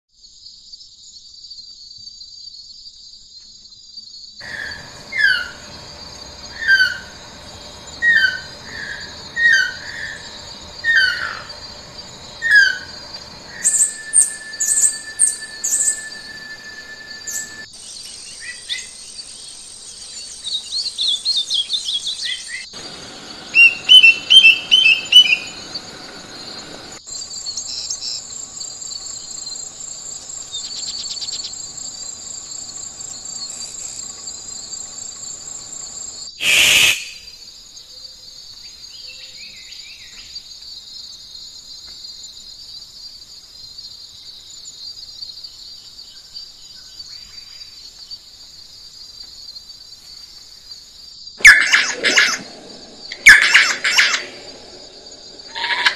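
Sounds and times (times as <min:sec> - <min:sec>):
high insect buzz: 0:00.2 - 0:55.9
harsh bird call: 0:04.4 - 0:17.7, 0:22.7 - 0:26.0, 0:36.4 - 0:37.3, 0:51.4 - 0:55.9
songbirds singing: 0:04.4 - 0:33.8, 0:34.4 - 0:40.6.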